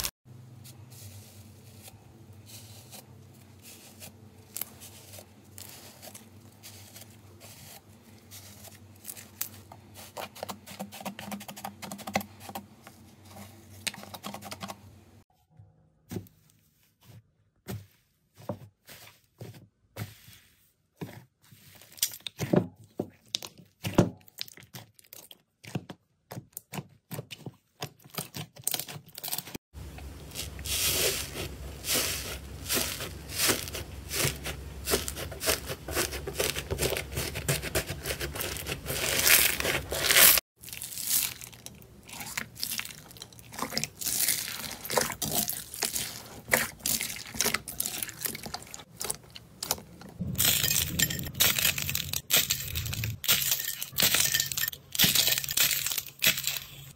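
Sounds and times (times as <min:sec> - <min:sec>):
slime crackling and tearing: 0:30.3 - 0:53.4.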